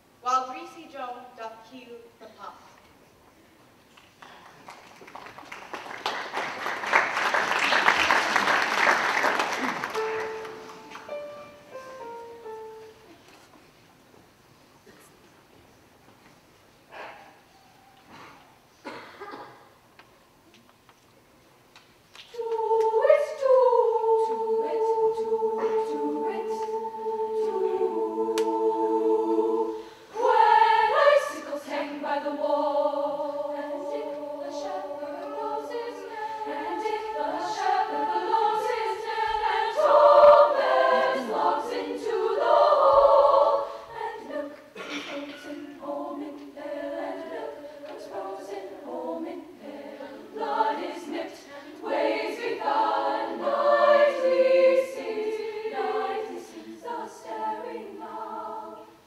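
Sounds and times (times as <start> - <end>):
women's choir singing: 22.2 - 59.0.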